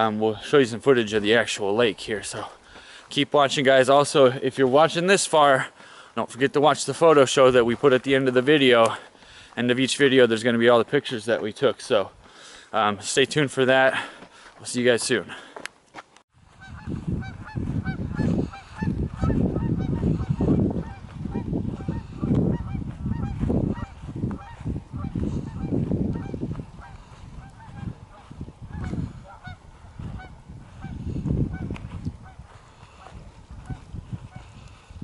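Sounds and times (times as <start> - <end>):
wind rumbling on microphone: 16.4 - 35.0
geese honking: 16.5 - 34.9.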